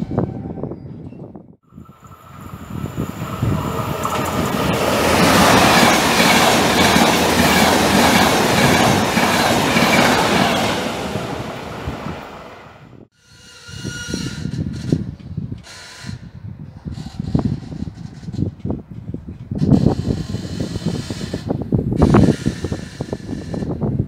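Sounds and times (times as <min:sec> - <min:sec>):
passenger train passing: 0:01.7 - 0:15.2.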